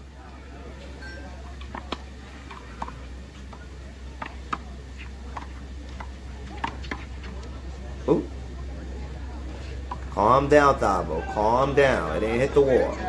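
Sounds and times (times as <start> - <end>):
low steady hum: 0.0 - 13.0
handball slapping wall and court: 1.6 - 7.3.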